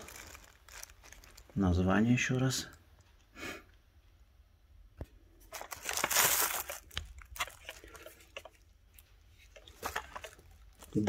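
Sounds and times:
packaging rustling and crinkling: 0.0 - 1.8, 5.4 - 11.0.

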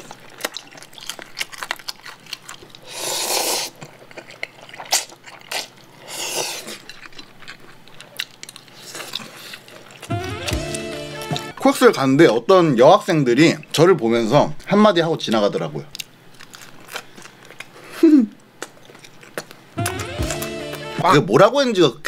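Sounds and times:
wet chewing: 0.0 - 11.5, 15.3 - 21.0
slurping noodles: 2.8 - 3.8, 4.4 - 6.9.

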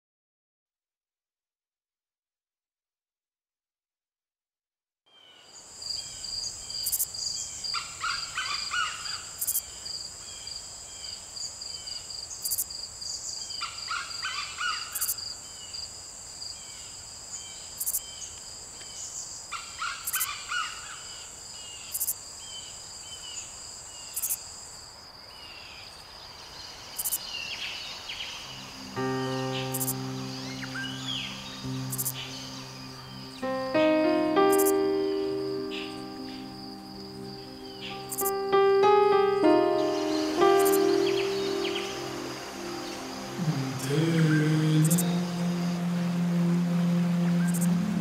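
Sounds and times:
high insect drone: 5.6 - 24.7, 26.7 - 48.0
pulsing insect call: 28.2 - 48.0
music: 28.5 - 48.0.

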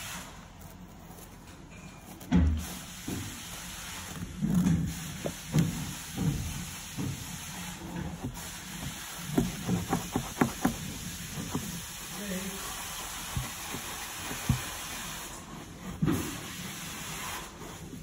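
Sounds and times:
wire brush scrubbing carpet: 0.0 - 18.0
dull knocks: 5.3 - 11.8.

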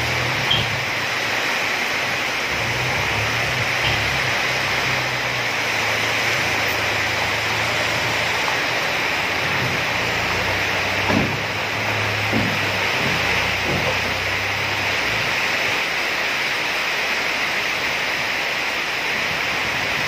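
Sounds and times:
truck engine humming: 0.0 - 19.9
heavy rain hissing: 0.0 - 20.0
dull knocks: 10.8 - 14.6.

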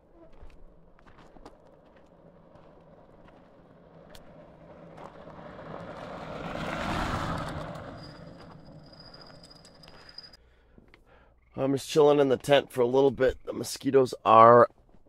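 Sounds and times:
bike tyres crunching on gravel: 0.0 - 10.2.

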